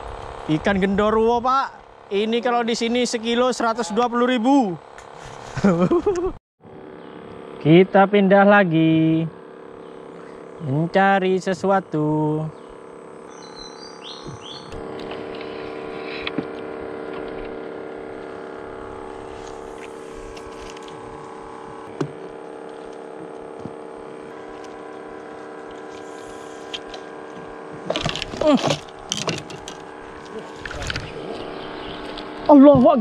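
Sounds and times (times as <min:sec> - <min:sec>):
boat motor humming: 0:00.0 - 0:33.0
person calling out: 0:02.2 - 0:04.8, 0:28.4 - 0:28.8.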